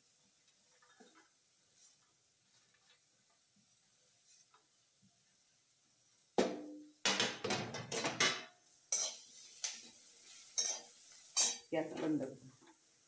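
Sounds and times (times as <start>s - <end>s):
metal spoon scraping in a pan: 8.9s - 11.7s.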